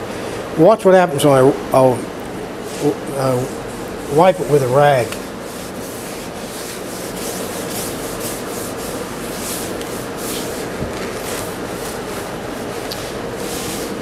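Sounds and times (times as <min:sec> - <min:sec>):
faint steady hum: 0:00.0 - 0:14.0
cloth rag rubbing on wood: 0:02.6 - 0:14.0.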